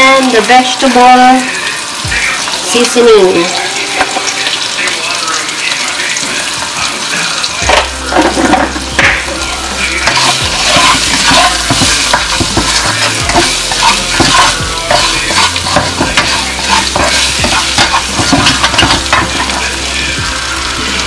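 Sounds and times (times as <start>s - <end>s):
food sizzling in oil: 0.0s - 21.0s
spatula scraping a wok: 10.0s - 19.7s.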